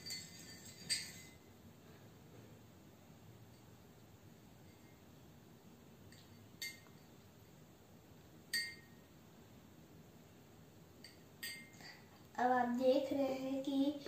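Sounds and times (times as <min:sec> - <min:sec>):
spoon clinking against bowl: 0:06.1 - 0:07.1, 0:08.5 - 0:09.0, 0:11.0 - 0:11.8.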